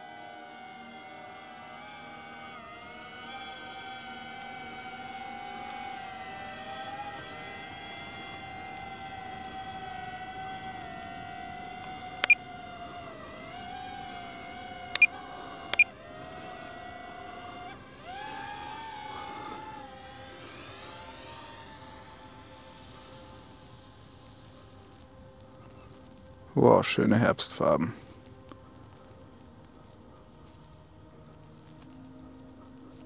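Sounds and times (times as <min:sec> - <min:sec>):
drone propellers whining: 0:00.0 - 0:26.3.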